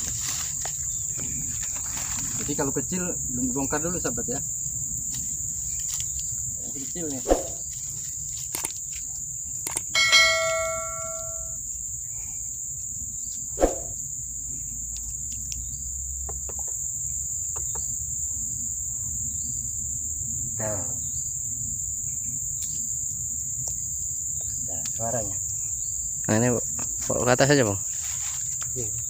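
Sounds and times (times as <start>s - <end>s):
insects buzzing: 0.0s - 29.0s
sharp metallic clang: 10.0s - 11.6s.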